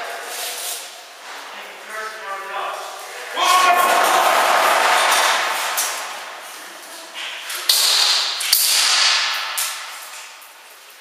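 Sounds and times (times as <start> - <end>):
airsoft gun shots echoing: 7.7 - 9.9.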